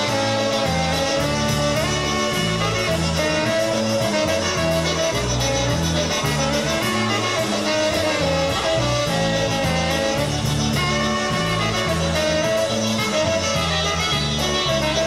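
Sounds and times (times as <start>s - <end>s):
bass line: 0.0s - 15.0s
horns playing melody: 0.0s - 15.0s
steady beat: 0.0s - 15.0s.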